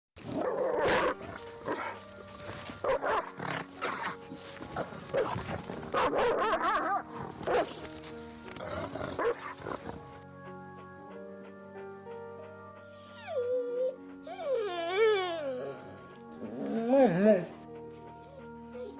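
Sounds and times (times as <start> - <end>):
background music with held notes: 0.2 - 18.9
dog whining and yelping: 12.8 - 18.9.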